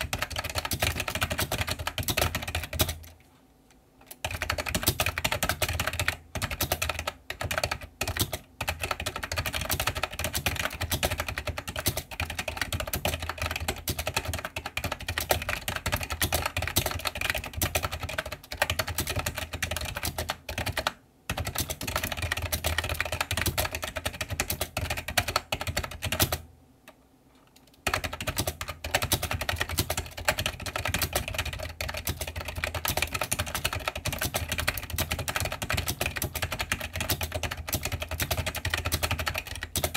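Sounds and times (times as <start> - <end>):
fast typing on keyboard: 0.0 - 3.1, 4.1 - 26.4, 27.7 - 39.9.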